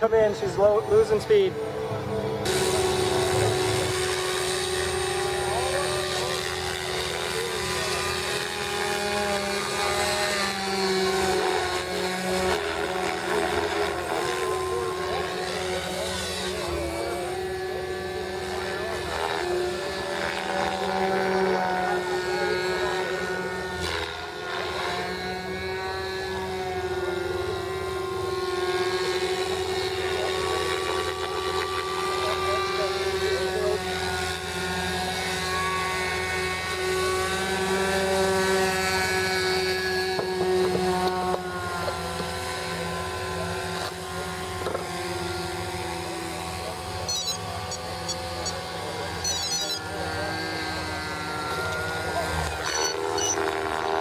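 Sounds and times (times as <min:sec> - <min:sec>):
model helicopter motor whine: 0:00.0 - 0:54.0.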